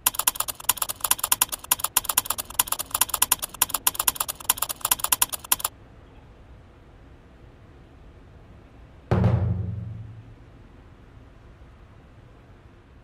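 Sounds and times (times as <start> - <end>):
keyboard key clicks: 0.0 - 5.7.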